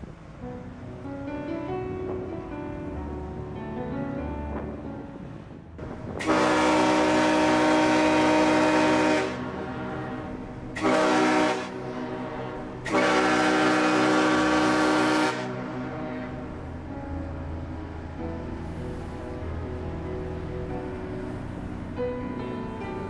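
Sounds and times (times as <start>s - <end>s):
ship's horn blasts: 5.8s - 17.7s.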